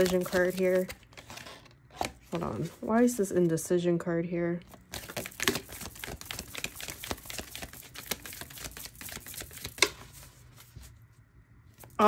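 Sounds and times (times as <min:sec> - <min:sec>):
cards being shuffled: 0:00.0 - 0:02.9, 0:04.7 - 0:11.0.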